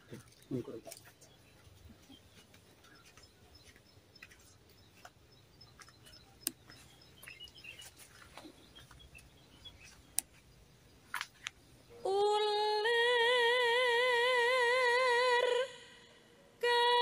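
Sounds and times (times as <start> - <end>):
faint bird chirps: 0.0 - 12.2
sharp clicks: 5.8 - 7.6, 10.1 - 10.3.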